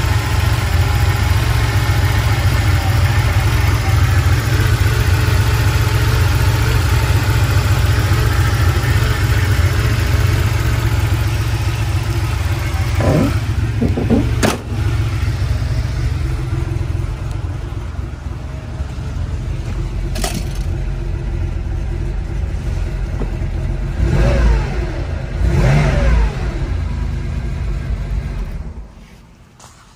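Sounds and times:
car engine idling and revving: 0.0 - 29.9
sharp knocks: 13.0 - 14.8.

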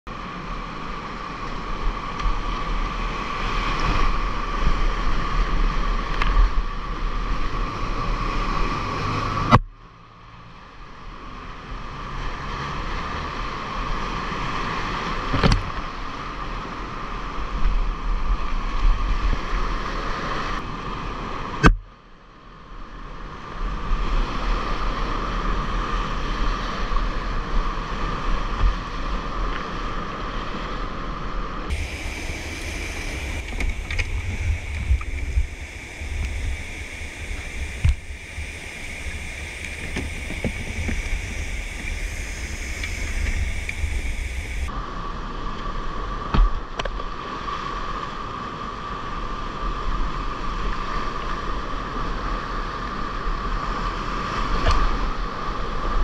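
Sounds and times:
water noise on microphone: 22.6 - 56.0
whitewater rushing: 31.7 - 44.8.

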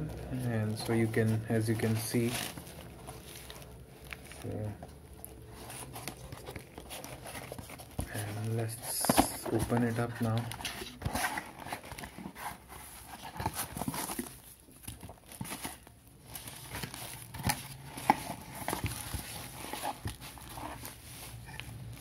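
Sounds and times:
cardboard box flaps rustling: 5.5 - 22.0.

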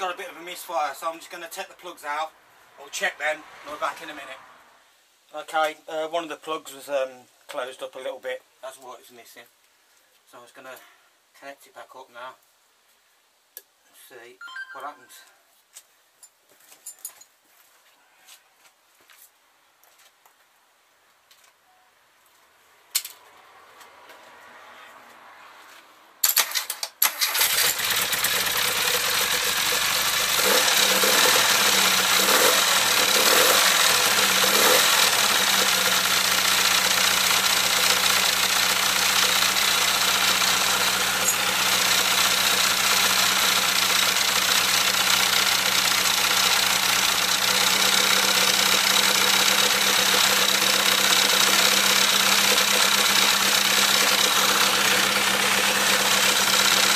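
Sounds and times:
car engine cranking and revving: 27.0 - 56.9.

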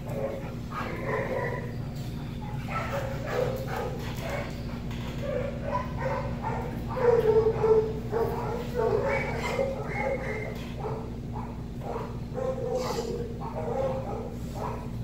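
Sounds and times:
steady low hum: 0.0 - 15.0
dog whining and yipping: 8.4 - 11.0, 11.9 - 14.2.

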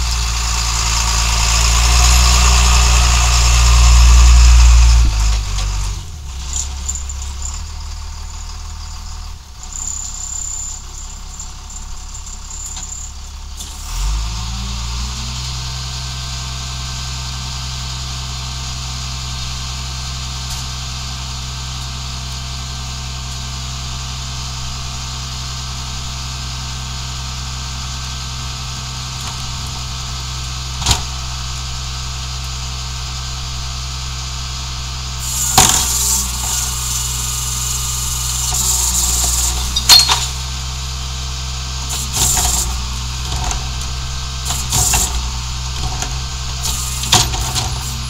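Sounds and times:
garbage truck engine idling: 0.0 - 48.0
cart tipper clattering and hissing: 35.2 - 48.0.

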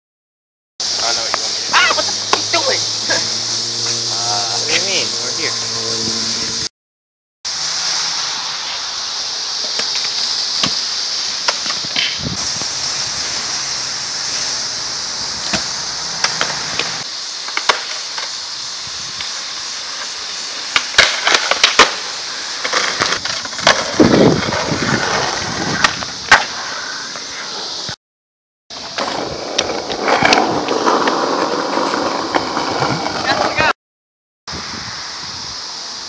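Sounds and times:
steady hiss: 0.8 - 6.7, 7.5 - 28.0, 34.5 - 36.0
skateboard wheels rolling: 0.9 - 6.7, 7.5 - 28.0, 28.7 - 33.7.

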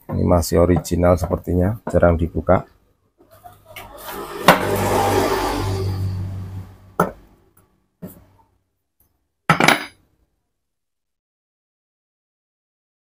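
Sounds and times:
gritty metal scraping: 3.5 - 7.0.

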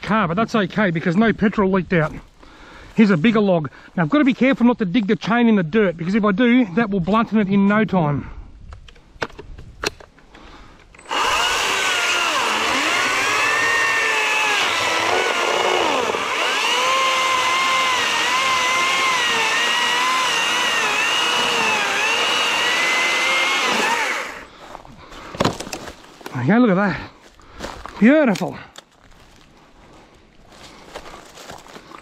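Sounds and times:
electric chainsaw cutting log: 11.0 - 24.5.

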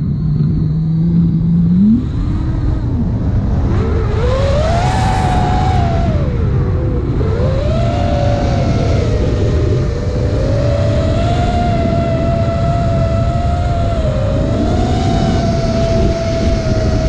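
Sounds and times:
drone motors whining: 0.0 - 17.0
wind rumble on microphone: 0.0 - 17.0.

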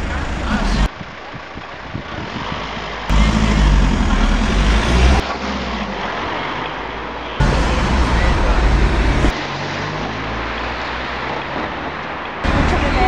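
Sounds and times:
street noise: 0.0 - 13.0
car driving past: 3.1 - 13.0.

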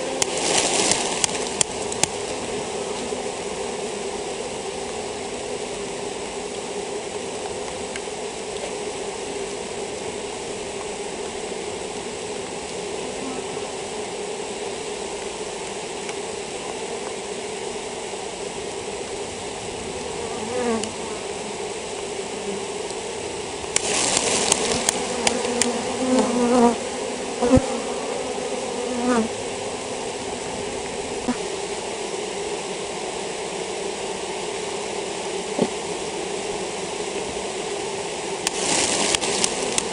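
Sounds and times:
rustling: 0.0 - 3.2, 23.7 - 26.7, 38.4 - 39.9
bee flying past: 0.0 - 39.9
honeybees buzzing: 0.0 - 39.9.

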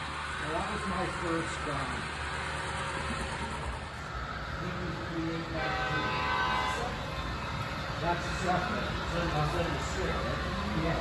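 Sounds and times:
model trains rumbling on track: 0.0 - 11.0
model locomotive horn: 5.4 - 7.1.

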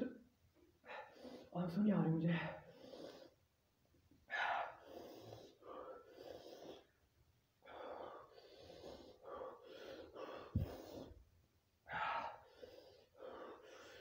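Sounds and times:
man breathing hard: 4.2 - 7.0, 7.6 - 11.2, 11.8 - 14.0.

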